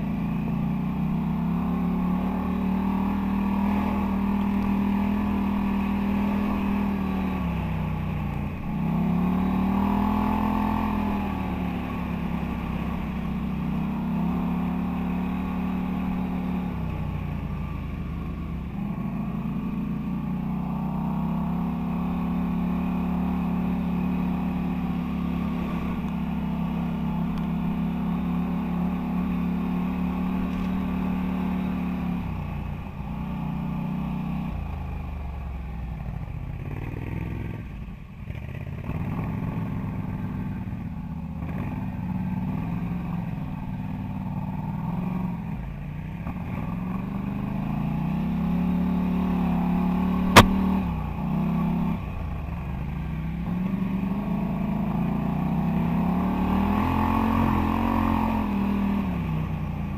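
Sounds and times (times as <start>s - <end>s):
quad bike engine revving: 0.0s - 17.2s, 46.2s - 59.9s
sharp click: 50.3s - 50.7s.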